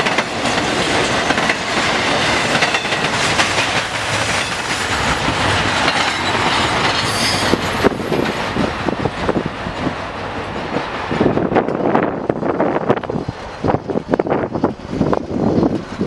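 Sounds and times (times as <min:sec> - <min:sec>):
train wheels clattering: 0:00.0 - 0:16.0
high wheel squeal: 0:03.7 - 0:05.4, 0:06.2 - 0:08.3.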